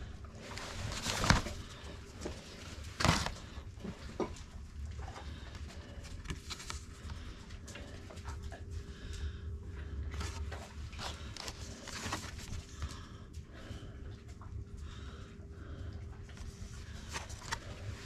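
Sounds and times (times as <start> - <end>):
paper cards rustling: 0.3 - 3.6, 5.8 - 7.3, 10.1 - 13.0, 16.4 - 18.0.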